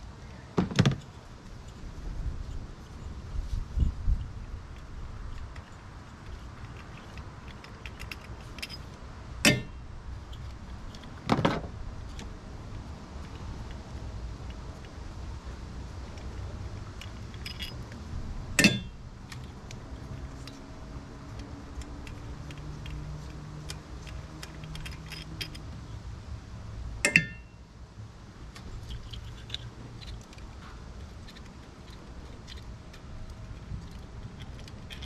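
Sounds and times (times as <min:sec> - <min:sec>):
loud metallic clanks: 0:09.4 - 0:09.8, 0:18.6 - 0:19.0.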